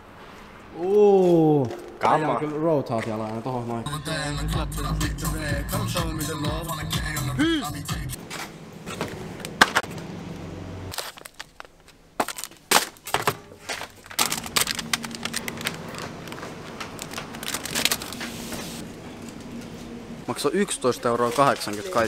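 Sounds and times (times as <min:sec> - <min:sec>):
faint hum: 0:00.0 - 0:10.9, 0:14.2 - 0:21.7
plastic packaging crinkling: 0:10.9 - 0:13.1, 0:13.8 - 0:18.8.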